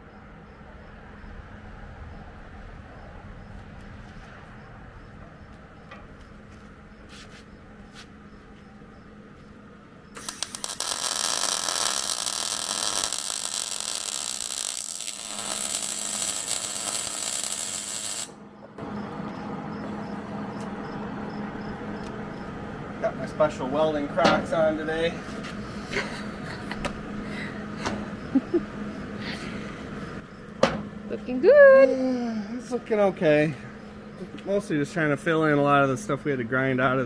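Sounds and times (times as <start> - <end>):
welder arc crackling: 10.1 - 18.4.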